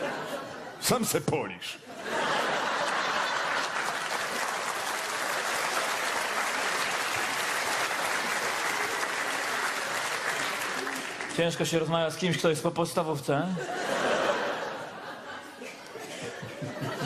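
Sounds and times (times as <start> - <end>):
audience applauding: 2.6 - 12.2.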